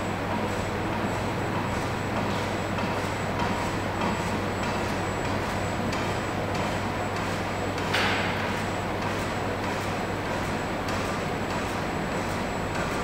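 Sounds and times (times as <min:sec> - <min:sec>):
mechanical hum: 0:00.0 - 0:13.0.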